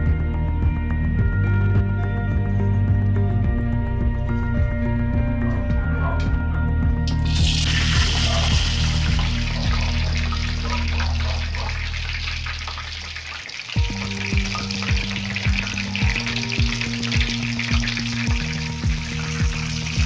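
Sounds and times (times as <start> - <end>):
background music with beat: 0.0 - 12.7, 13.8 - 20.0
chicken sizzling in hot oil: 7.1 - 20.0.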